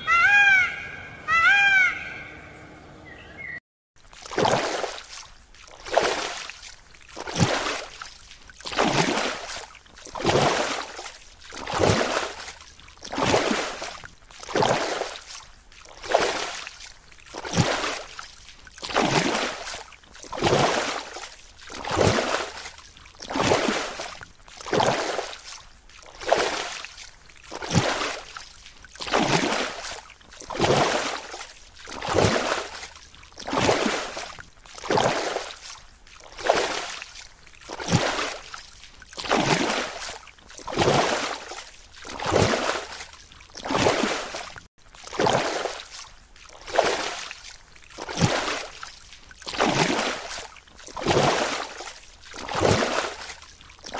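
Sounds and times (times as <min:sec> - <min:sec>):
water sloshing: 0:04.0 - 0:53.9.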